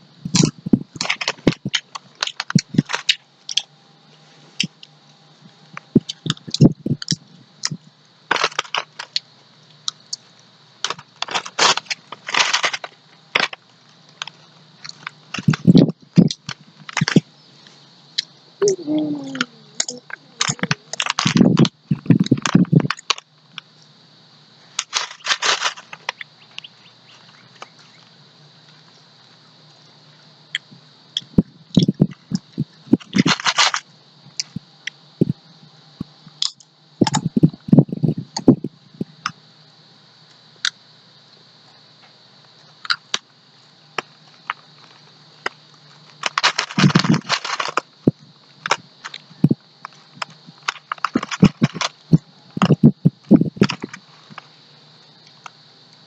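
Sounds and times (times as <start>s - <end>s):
potato chips crunching: 0.4s - 3.6s, 6.0s - 9.2s, 10.8s - 17.2s, 18.6s - 23.2s, 24.7s - 28.0s, 31.2s - 33.8s, 44.0s - 47.9s, 49.8s - 52.8s.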